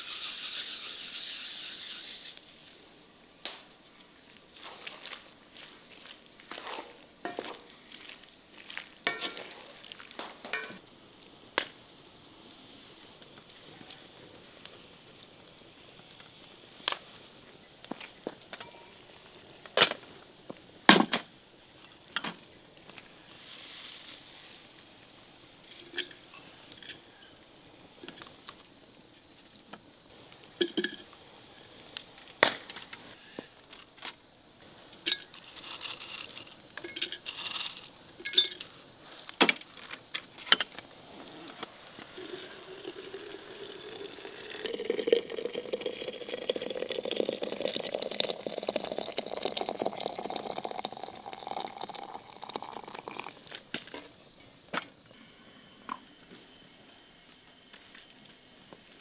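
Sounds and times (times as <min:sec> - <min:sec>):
water pouring into teapot: 0:42.2 - 0:53.5.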